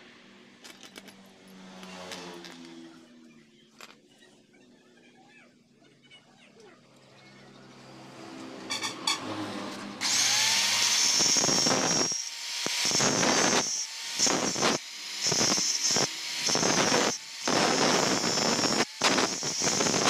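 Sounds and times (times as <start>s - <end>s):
angle grinder whining: 10.0s - 20.0s
grinder cutting metal nail: 10.0s - 20.0s.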